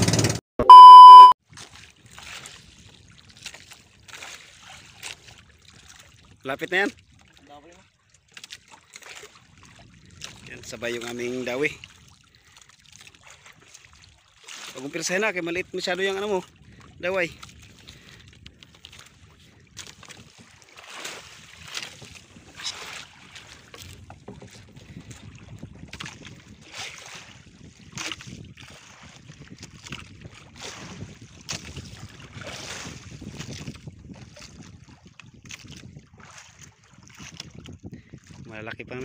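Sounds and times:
water lapping against boat hull: 0:01.4 - 0:39.0
wind buffeting microphone: 0:09.4 - 0:10.8, 0:16.4 - 0:20.6, 0:21.2 - 0:39.0.

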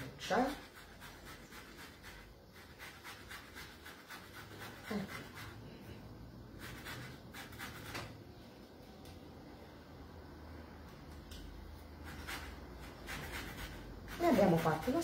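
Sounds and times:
zester scraping lemon peel: 0:12.0 - 0:15.0.

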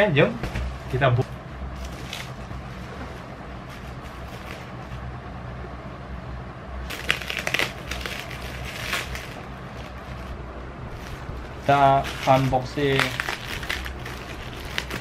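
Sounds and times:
scissors snipping plastic wrap: 0:06.9 - 0:09.4, 0:11.7 - 0:15.0
plastic wrap crackling: 0:06.9 - 0:15.0.

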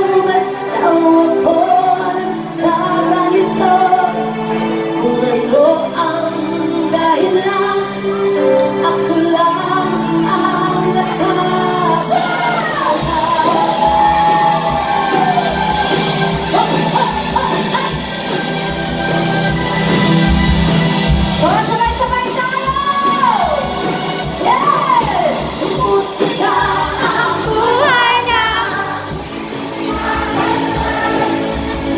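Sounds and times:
women singing: 0:00.0 - 0:18.0, 0:21.4 - 0:31.9
electric guitar: 0:00.0 - 0:31.9
bass guitar: 0:07.4 - 0:31.9.

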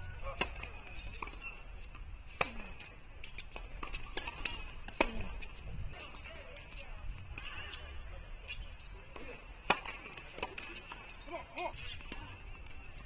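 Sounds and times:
racket hitting tennis ball: 0:00.3 - 0:05.6, 0:09.2 - 0:11.0.

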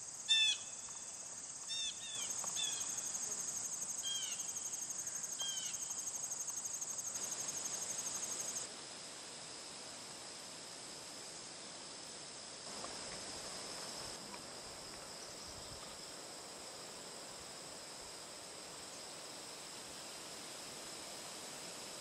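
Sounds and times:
crickets trilling: 0:00.0 - 0:22.0
soft hiss: 0:00.0 - 0:22.0.

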